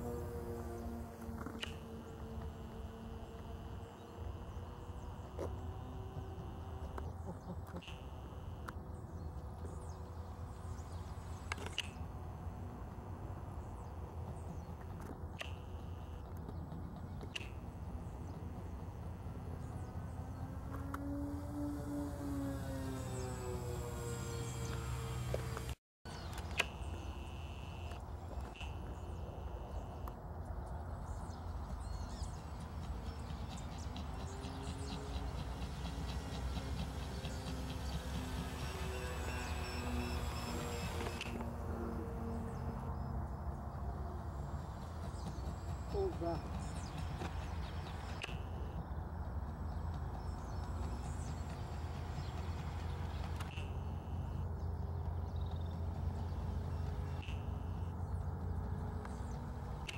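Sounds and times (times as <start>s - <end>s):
distant model plane hum: 0.0s - 59.9s.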